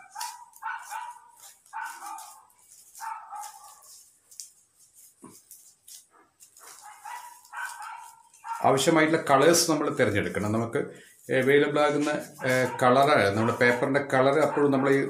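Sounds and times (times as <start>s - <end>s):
dog barking: 0.0s - 4.0s, 6.2s - 8.9s, 12.4s - 15.0s.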